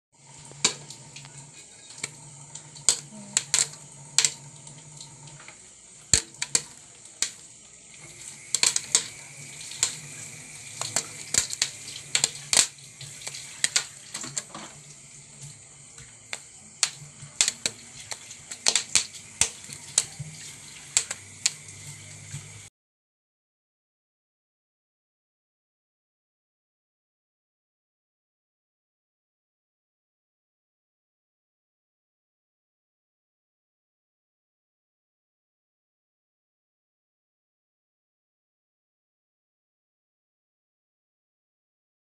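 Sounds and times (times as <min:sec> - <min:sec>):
popcorn popping in a pan: 0:00.2 - 0:22.7
steady hiss: 0:00.2 - 0:22.7.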